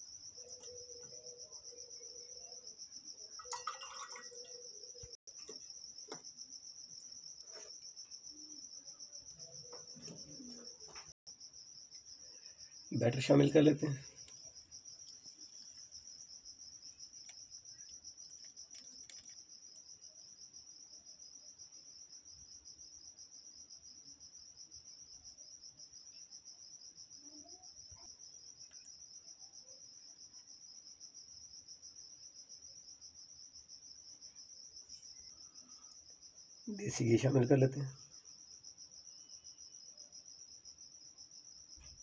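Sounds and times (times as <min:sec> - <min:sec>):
cricket chirping: 0:00.0 - 0:42.0.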